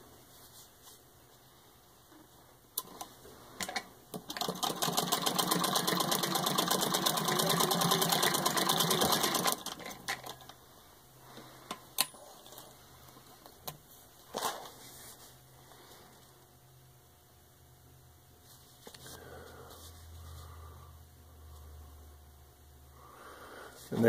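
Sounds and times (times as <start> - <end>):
hand-cranked sewing machine clatter: 4.2 - 10.5.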